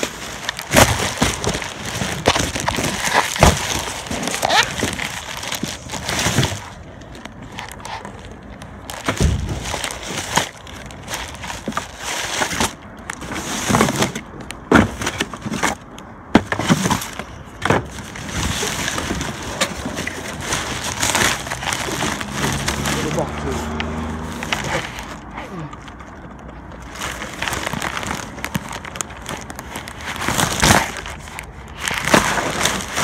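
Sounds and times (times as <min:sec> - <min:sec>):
knocks and cracks of trash: 0:00.0 - 0:06.8, 0:08.8 - 0:25.2
plastic bags crinkling and rustling: 0:00.0 - 0:33.0.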